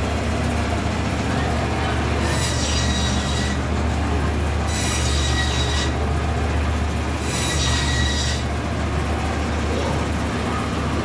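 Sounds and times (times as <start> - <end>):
band saw humming: 0.0 - 11.0
high squealing whine: 2.1 - 3.8, 4.6 - 6.1, 7.1 - 8.6.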